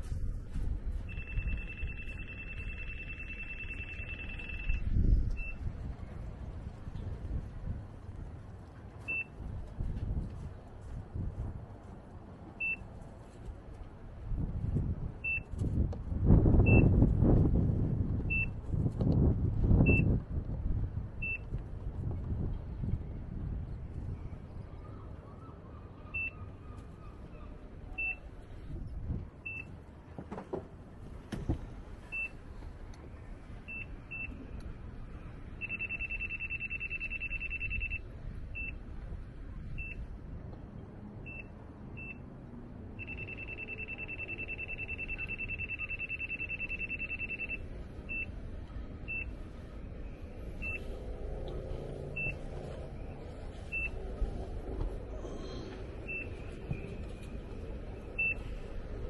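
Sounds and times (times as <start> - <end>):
high electronic beeps: 1.1 - 5.6, 35.6 - 38.0, 43.0 - 48.3
low background rumble: 47.2 - 59.0.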